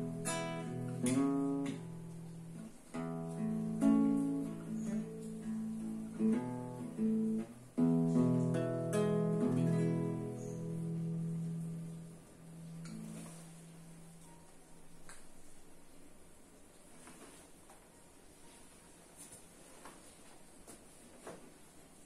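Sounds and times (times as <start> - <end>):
classical guitar strummed slowly: 0.0 - 15.0.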